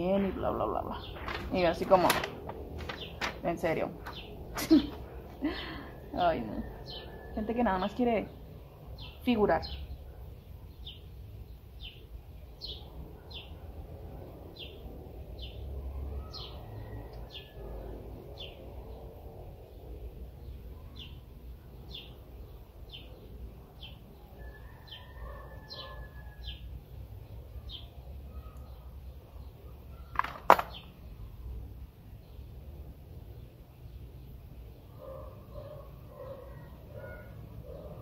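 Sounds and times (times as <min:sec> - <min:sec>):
low background noise: 0:00.0 - 0:38.0.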